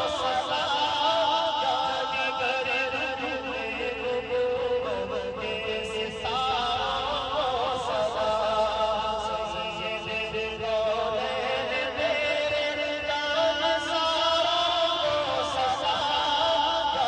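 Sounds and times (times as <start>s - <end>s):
man singing through microphone: 0.0s - 17.0s.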